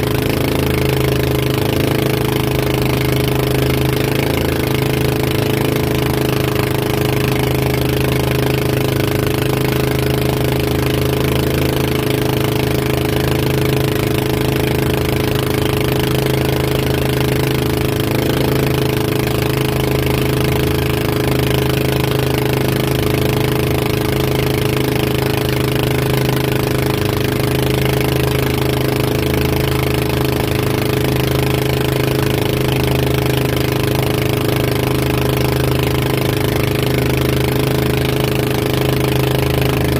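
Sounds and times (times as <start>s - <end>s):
motorboat engine humming: 0.0s - 39.9s.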